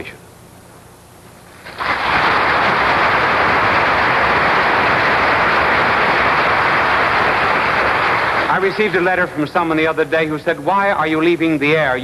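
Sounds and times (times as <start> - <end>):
audience applauding: 1.6 - 9.5.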